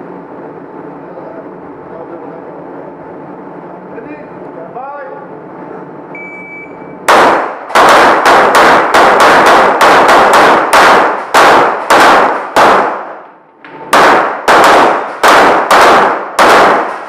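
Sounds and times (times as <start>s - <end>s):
pistol fire echoing: 7.1s - 17.0s.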